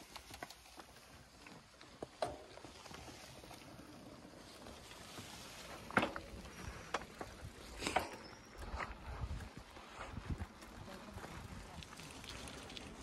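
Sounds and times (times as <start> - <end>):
bike tyres rushing on dirt: 0.0 - 13.0
bike clunks and rattles: 2.0 - 2.9, 5.7 - 8.9.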